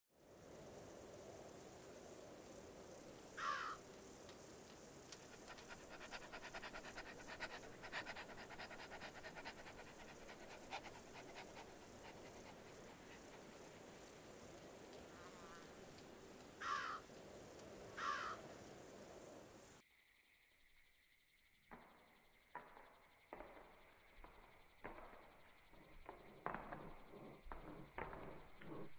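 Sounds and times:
fast insect clicking: 5.1s - 13.6s.

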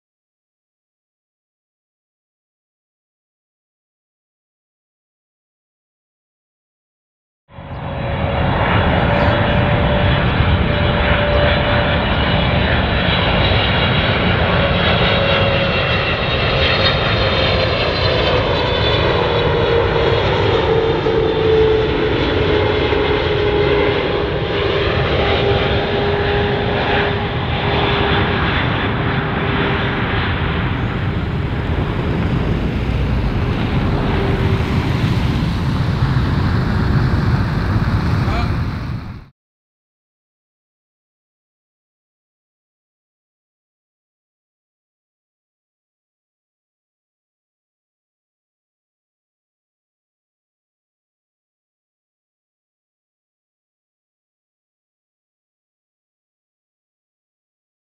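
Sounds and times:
jet airliner landing overhead: 7.5s - 39.3s.

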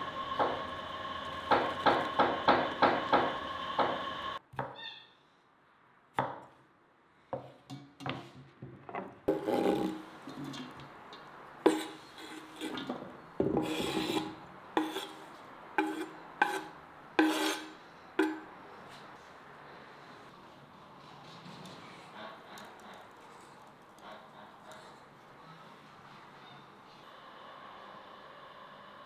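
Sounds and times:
knife scraping across board: 9.3s - 10.6s, 11.6s - 18.4s.

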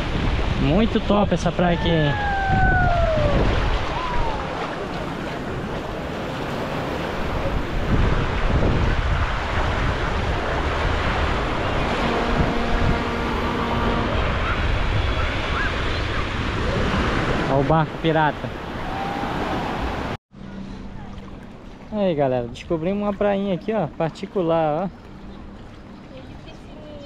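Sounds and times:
surf washing onto beach: 0.0s - 20.2s
wind rumbling on microphone: 0.0s - 20.2s
voice trailing off: 1.6s - 4.6s
steady humming tone: 10.1s - 15.3s.

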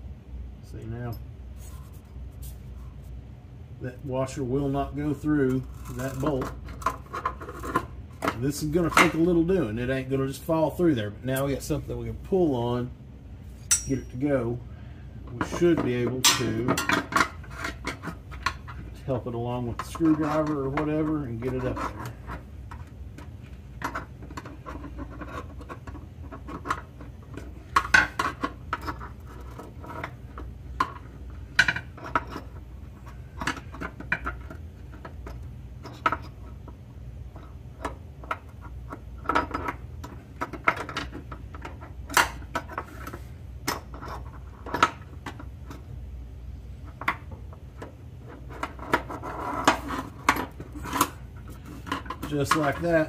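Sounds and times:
metal scraping and clinking: 13.5s - 14.4s, 15.3s - 36.5s, 48.2s - 53.0s.

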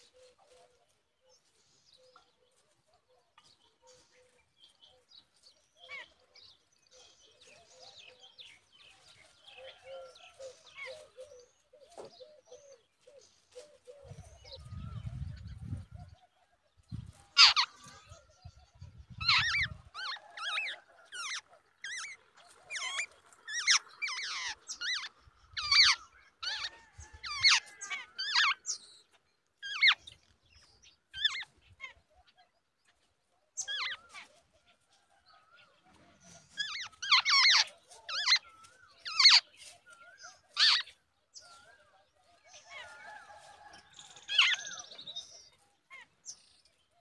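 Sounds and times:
birds shrill squeaky calls: 16.9s - 33.0s, 33.6s - 34.4s, 36.1s - 41.8s, 42.5s - 47.0s.

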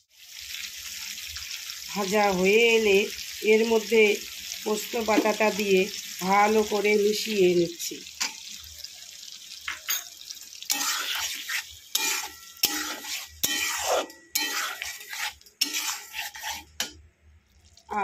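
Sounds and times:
food sizzling: 0.0s - 18.0s
spatula scraping a metal pan: 10.7s - 17.0s.

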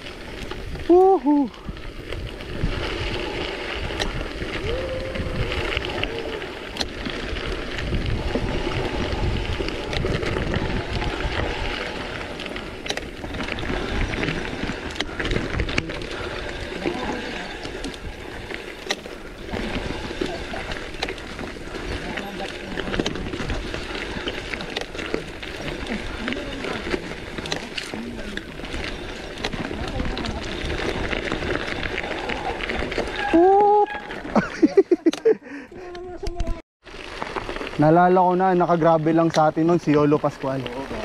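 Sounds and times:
wind over microphone: 0.0s - 34.8s
bike tyres rolling on dirt: 0.0s - 41.0s
bike clicks and knocks: 5.7s - 7.8s.

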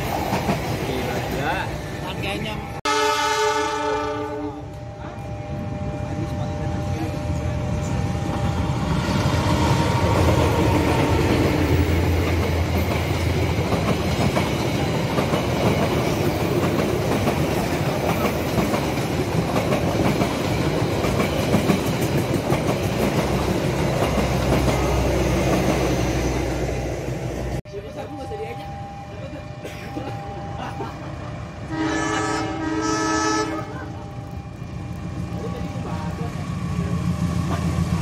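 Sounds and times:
train wheels clickety-clack: 0.0s - 1.7s, 8.4s - 26.2s, 34.2s - 38.0s
diesel locomotive engine running: 4.6s - 38.0s.

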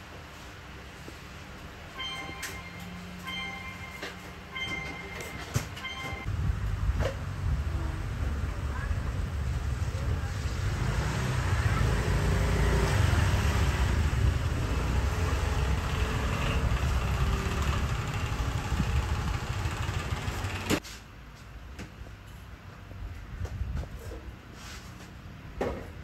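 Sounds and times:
street traffic rumble: 5.7s - 21.5s.

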